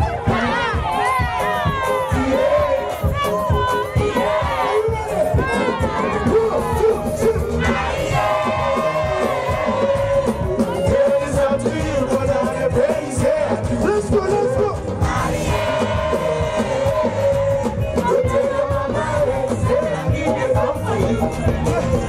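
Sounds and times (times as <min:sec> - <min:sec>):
backing track with heavy bass: 0:00.0 - 0:22.0
man singing into microphone: 0:03.9 - 0:07.9, 0:10.4 - 0:15.1, 0:16.0 - 0:22.0.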